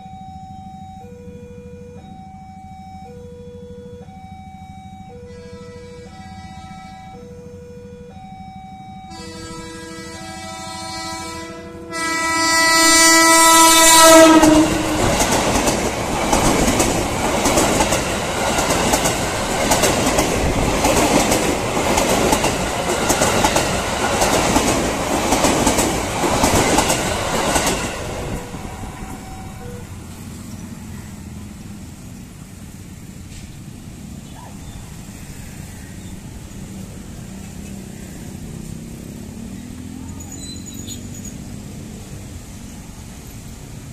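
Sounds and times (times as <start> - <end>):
level-crossing alarm two tones: 0.0 - 10.4, 27.5 - 30.0
train horn blowing: 5.0 - 8.3, 9.1 - 15.4, 27.8 - 30.2
train wheels clattering on rails: 13.8 - 30.8.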